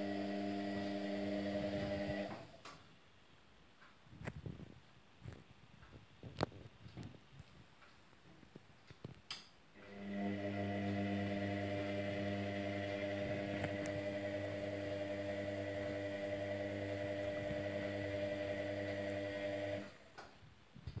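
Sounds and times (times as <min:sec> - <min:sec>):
washing machine motor humming: 0:00.0 - 0:02.6, 0:09.8 - 0:20.0.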